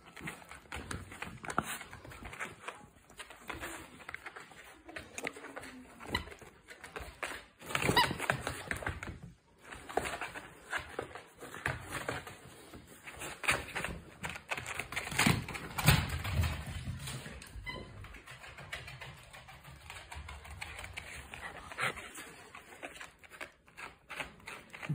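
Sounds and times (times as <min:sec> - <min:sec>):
dog claws clicking on mats: 0:00.0 - 0:17.5.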